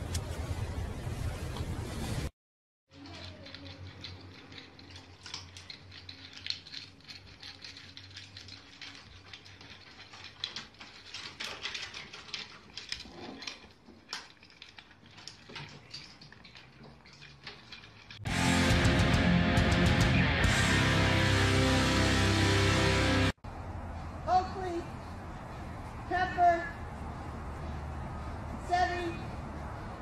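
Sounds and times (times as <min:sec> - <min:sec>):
abacus beads clicking and clacking: 0:02.9 - 0:18.2.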